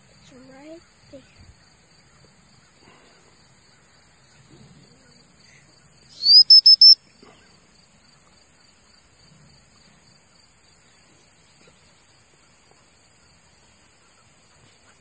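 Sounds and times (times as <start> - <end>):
faint insect chirping: 0.0 - 15.0
whistle tooting: 6.1 - 7.0.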